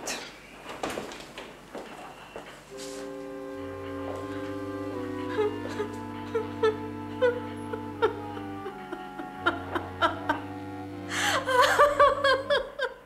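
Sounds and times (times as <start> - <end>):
slow melody of single notes: 2.7 - 12.8
woman sobbing loudly: 5.2 - 10.5, 11.1 - 13.0.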